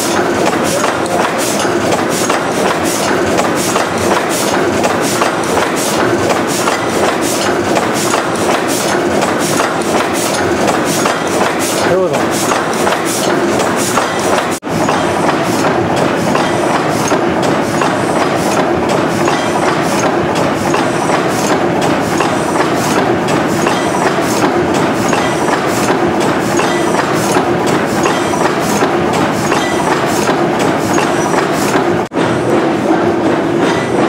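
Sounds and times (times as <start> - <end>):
rhythmic valve gear clicks: 0.0 - 34.0
stationary engine running: 0.0 - 34.0.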